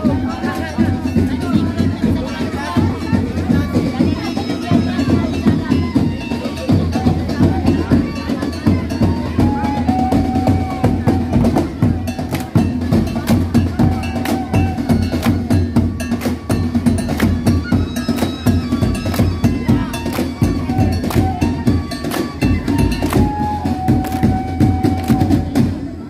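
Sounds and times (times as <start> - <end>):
held melody: 0.0 - 25.7
percussion band playing fast rhythm: 0.0 - 26.0.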